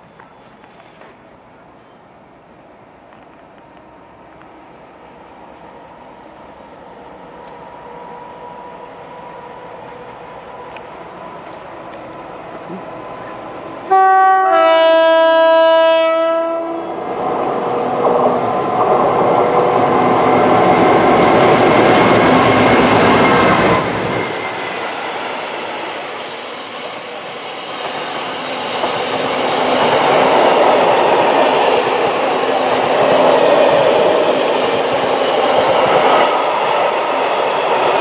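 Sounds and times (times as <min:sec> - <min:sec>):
two-tone locomotive horn: 0:13.8 - 0:17.0
locomotive passing: 0:16.8 - 0:38.0
train wheel clatter: 0:18.0 - 0:38.0.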